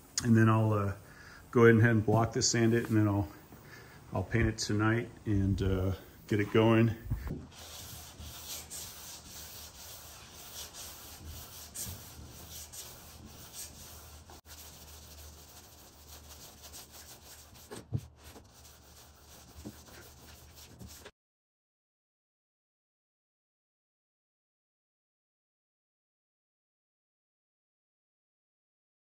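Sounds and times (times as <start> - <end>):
sandpaper rasping on surface: 7.5 - 21.1.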